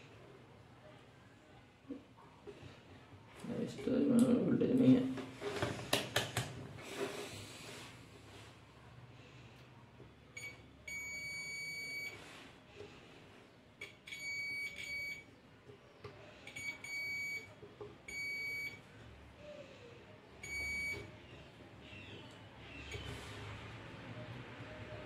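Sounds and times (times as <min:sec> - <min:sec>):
multimeter continuity beeps: 0:10.3 - 0:12.2, 0:13.8 - 0:15.3, 0:16.4 - 0:18.9, 0:20.4 - 0:21.3.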